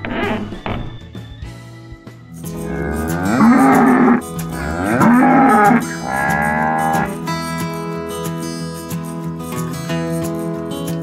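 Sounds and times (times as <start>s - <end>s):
acoustic guitar music: 2.3s - 11.0s
cow mooing: 2.6s - 7.2s.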